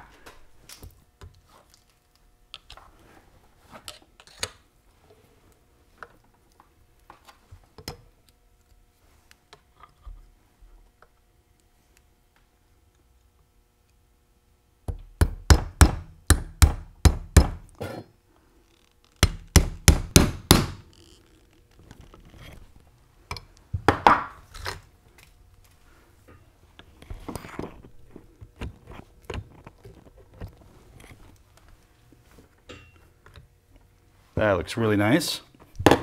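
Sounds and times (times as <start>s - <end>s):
hammer striking a metal punch: 14.9s - 17.6s.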